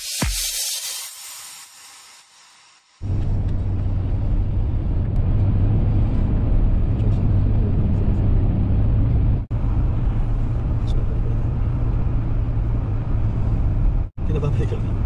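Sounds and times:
car cabin road rumble: 0:03.0 - 0:15.0.

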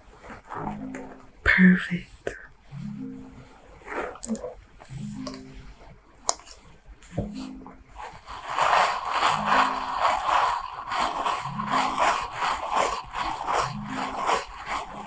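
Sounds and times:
soft low tone pattern: 0:00.6 - 0:03.6
brush scratching through hair: 0:03.7 - 0:15.0.

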